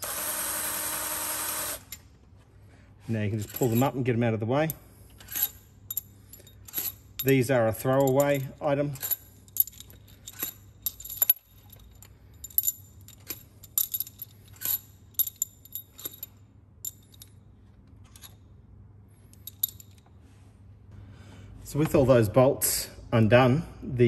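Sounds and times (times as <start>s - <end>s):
metal bolts clinking together: 3.3s - 18.5s, 19.2s - 20.2s.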